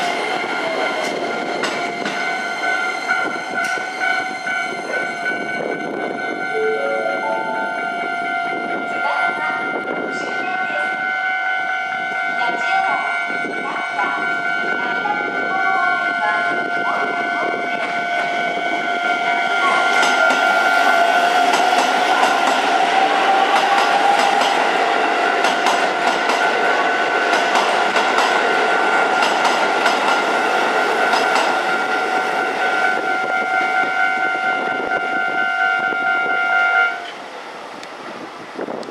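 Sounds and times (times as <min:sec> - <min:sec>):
train wheels clattering: 0:00.0 - 0:05.0, 0:19.9 - 0:30.4, 0:31.0 - 0:31.7
level crossing bell ringing: 0:06.3 - 0:08.6.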